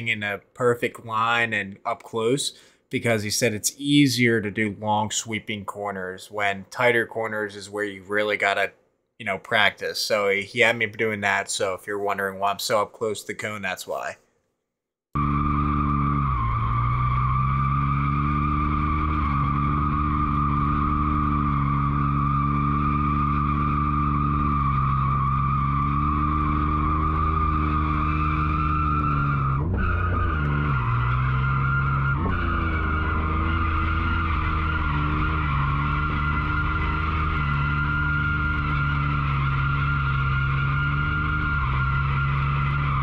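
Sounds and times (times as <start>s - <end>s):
car engine at high revs: 15.2s - 43.0s
tyre squeal: 15.2s - 43.0s.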